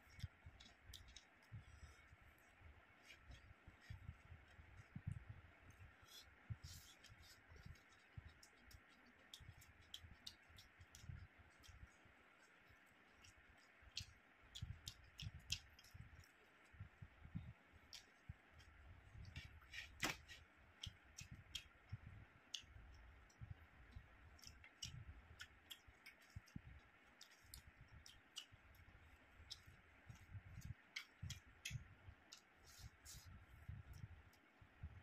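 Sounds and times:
fingers mixing food on a plate: 0.0 - 34.4
chewing clicks and smacks: 0.1 - 1.6, 7.5 - 16.8, 17.8 - 19.5, 20.7 - 32.6.

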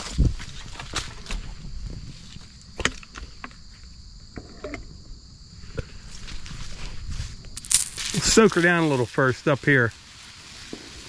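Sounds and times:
twigs and leaves crackling: 6.1 - 11.0
pump sprayer hissing: 8.1 - 11.0.

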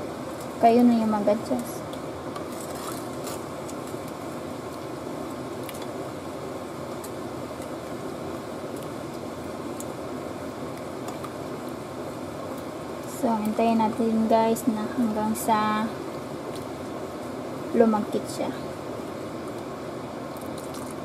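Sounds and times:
fan whirring: 0.0 - 21.0.

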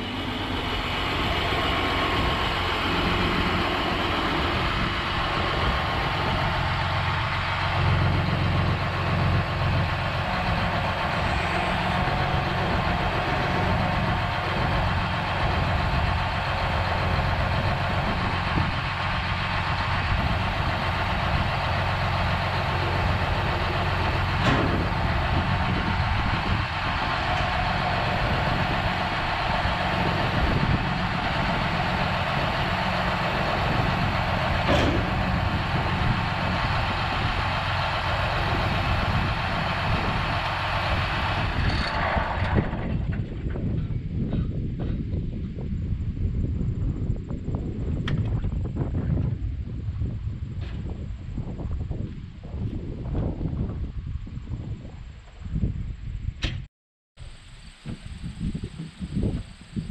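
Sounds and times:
diesel tractor engine idling: 0.0 - 45.3.

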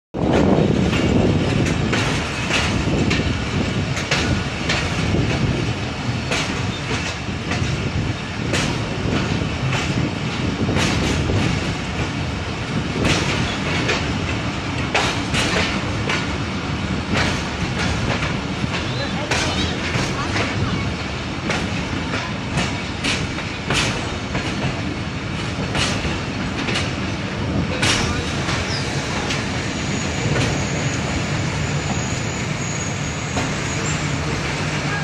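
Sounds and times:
train wheels rumbling on track: 0.1 - 35.0
wheels clacking over rails: 0.2 - 35.0.

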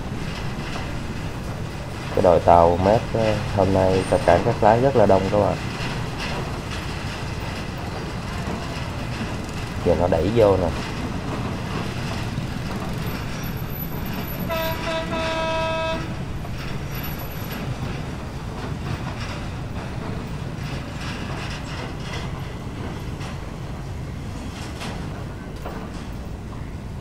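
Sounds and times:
tugboat engines rumbling: 0.0 - 27.0
ship horn toots: 14.1 - 16.3.

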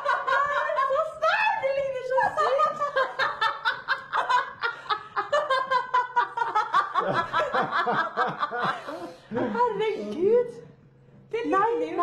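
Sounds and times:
people laughing together: 0.0 - 9.8.

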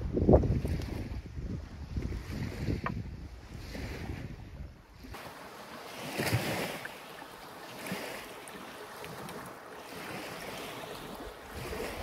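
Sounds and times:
wind on microphone: 0.0 - 12.0
waves washing on pebbles: 5.1 - 12.0.

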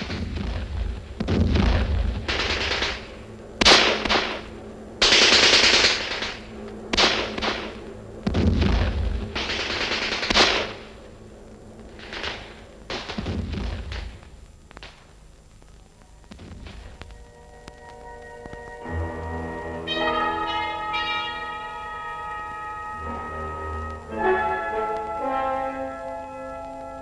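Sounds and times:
automatic gunfire bursts: 2.3 - 4.4, 5.0 - 6.4, 9.3 - 10.8.

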